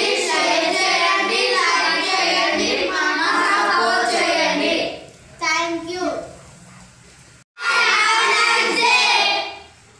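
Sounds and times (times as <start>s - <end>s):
children singing: 0.0s - 5.0s, 7.6s - 9.7s.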